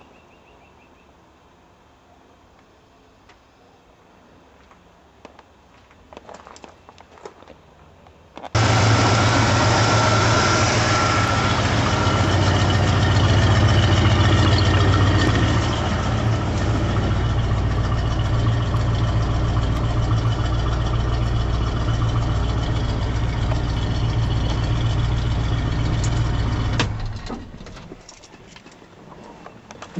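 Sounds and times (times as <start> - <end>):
truck engine idling: 8.6 - 28.0.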